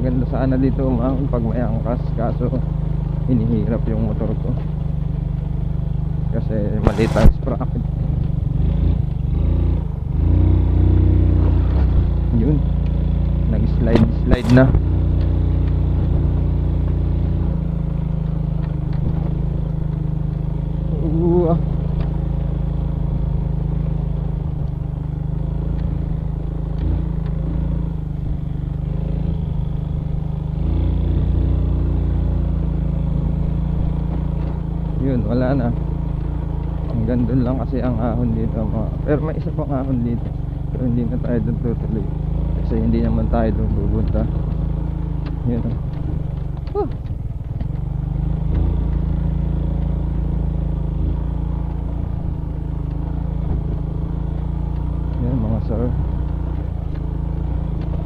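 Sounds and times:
motorcycle engine under load: 0.0 - 58.0
light ticks: 12.6 - 14.1, 15.1 - 15.8, 24.6 - 24.8, 25.6 - 26.0, 44.0 - 55.3.

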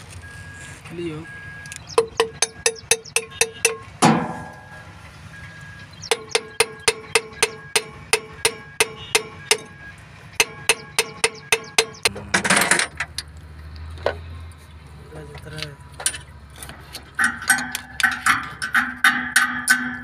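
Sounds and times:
tool tapping on metal: 1.8 - 4.7, 6.0 - 9.7, 10.4 - 13.1, 16.9 - 20.0
heavy metal knock: 2.0 - 4.8, 6.1 - 9.7, 10.4 - 13.0.

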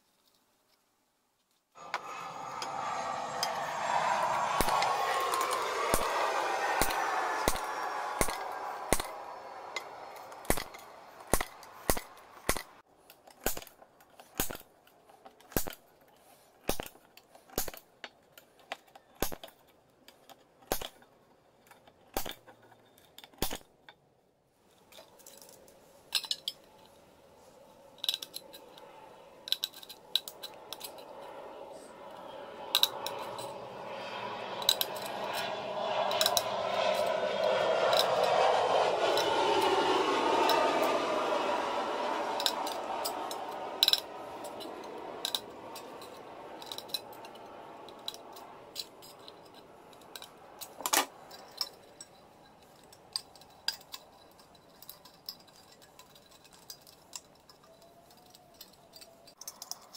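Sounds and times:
whirring with falling pitch: 1.8 - 12.8, 25.0 - 51.8.

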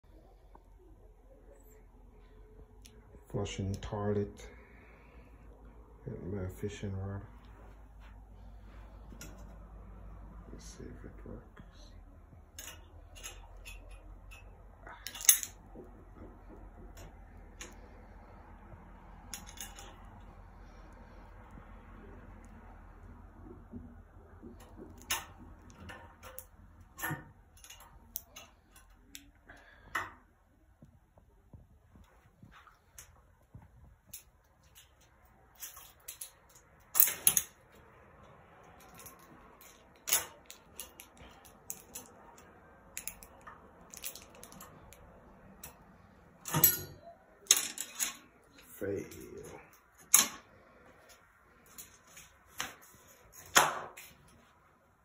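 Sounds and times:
light metallic clicks and rattles: 12.3 - 22.2, 23.0 - 30.3, 32.6 - 50.5
metallic clatter: 12.5 - 17.9, 19.3 - 20.3, 46.4 - 48.3.

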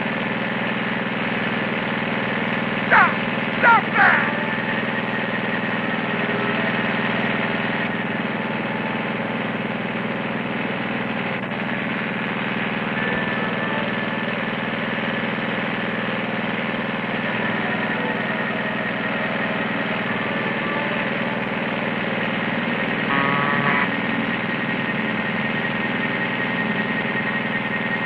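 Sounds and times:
lawn mower engine running: 0.0 - 28.0.

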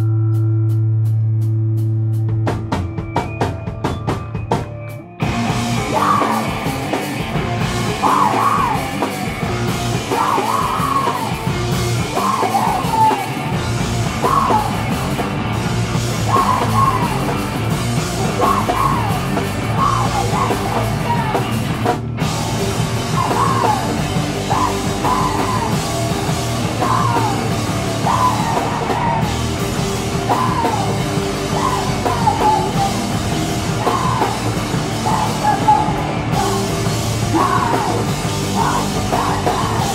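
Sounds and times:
bass and drum kit: 0.0 - 39.9
distorted electric guitars: 0.0 - 39.9
vocalist yelling: 5.8 - 6.7, 7.9 - 9.1, 10.0 - 15.0, 16.2 - 17.5, 18.1 - 21.6, 22.5 - 39.9.

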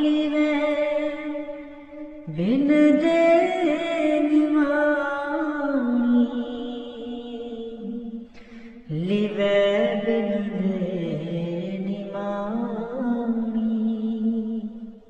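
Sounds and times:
person singing devotional song: 0.0 - 15.0
singer breathing: 8.2 - 8.9.

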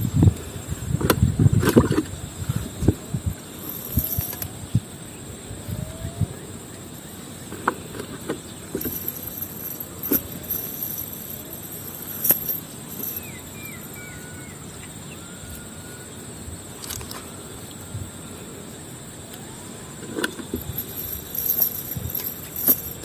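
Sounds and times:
high-pitched insect drone: 3.3 - 16.5
knocks and rustles: 7.5 - 13.3, 20.0 - 23.0
short chirping calls: 12.7 - 14.6.

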